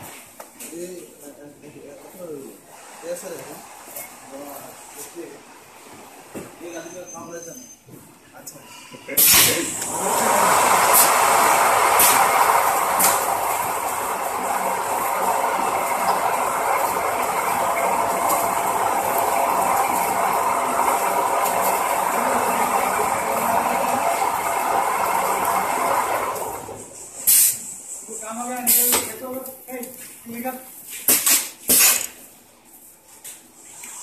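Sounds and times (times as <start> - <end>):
wrapping machine mechanical clatter: 9.2 - 26.8.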